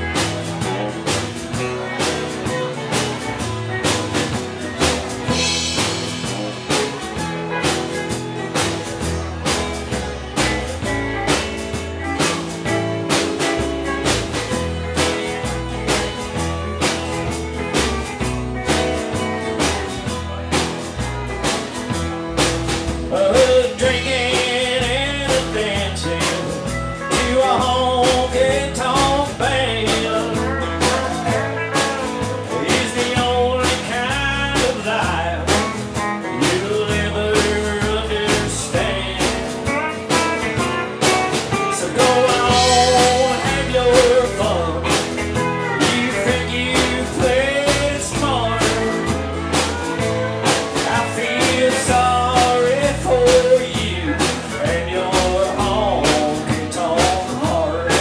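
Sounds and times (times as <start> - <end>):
country band playing: 0.0 - 58.0
person singing: 23.0 - 58.0.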